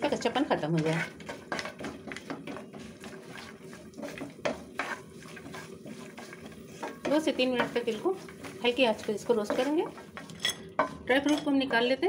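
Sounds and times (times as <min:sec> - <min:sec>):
spatula scraping frying pan: 0:00.0 - 0:11.8.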